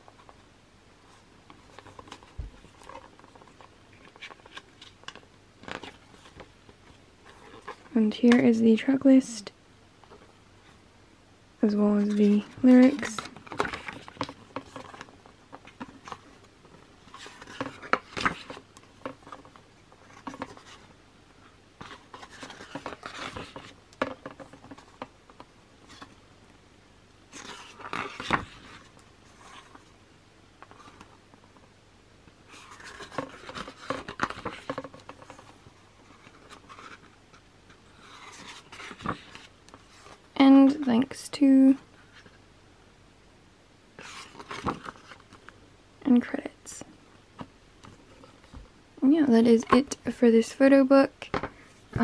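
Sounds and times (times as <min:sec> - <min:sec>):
paper pages turning: 0:01.1 - 0:08.4, 0:12.0 - 0:20.9, 0:21.8 - 0:26.2, 0:27.3 - 0:29.9, 0:32.5 - 0:41.2, 0:44.0 - 0:45.5.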